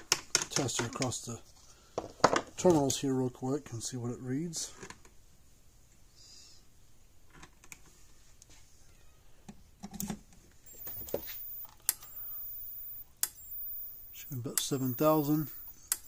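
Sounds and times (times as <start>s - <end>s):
faint high whine: 10.6s - 16.0s.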